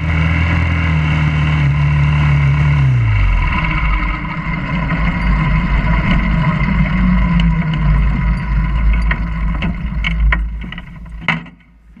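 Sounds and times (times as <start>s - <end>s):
small engine running at low speed: 0.0s - 11.4s
clicks and knocks: 5.0s - 12.0s.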